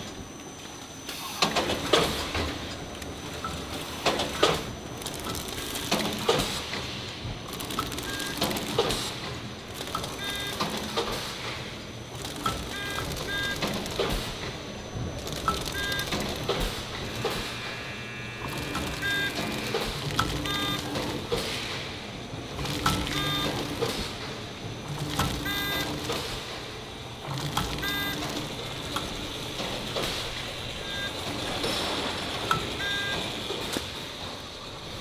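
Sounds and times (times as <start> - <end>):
packaging machinery clattering: 1.1 - 17.6, 18.4 - 35.0
sharp machine clicks: 7.4 - 11.5, 12.1 - 14.6, 15.2 - 17.8, 18.4 - 21.8
short high beeps: 17.4 - 20.9, 25.5 - 25.8, 27.8 - 28.2.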